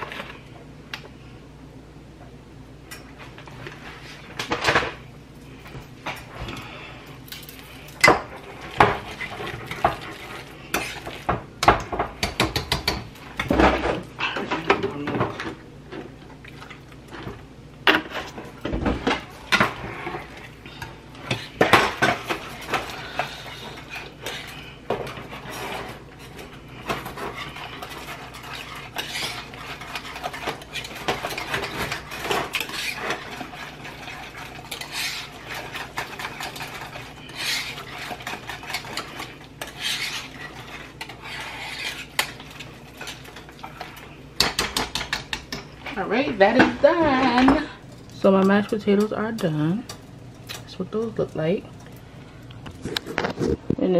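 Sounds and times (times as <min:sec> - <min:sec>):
utensil scraping a saucepan: 0:07.5 - 0:11.4, 0:17.9 - 0:49.9.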